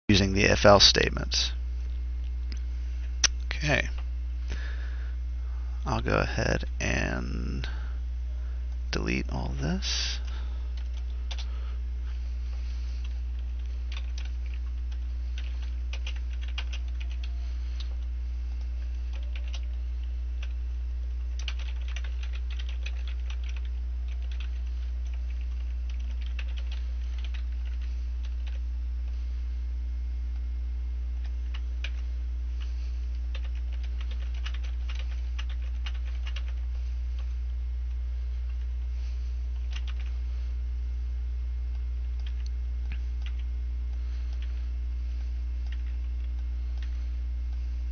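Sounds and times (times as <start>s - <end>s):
low electrical hum: 0.0s - 47.9s
typing on computer keyboard: 10.8s - 11.5s, 13.4s - 18.0s, 19.1s - 19.8s, 21.4s - 28.6s, 33.3s - 36.6s, 39.7s - 40.1s, 42.2s - 43.4s.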